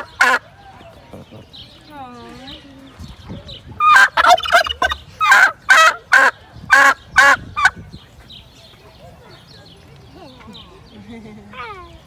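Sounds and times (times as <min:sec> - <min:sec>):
turkey gobbling: 0:00.0 - 0:00.4, 0:03.8 - 0:07.8.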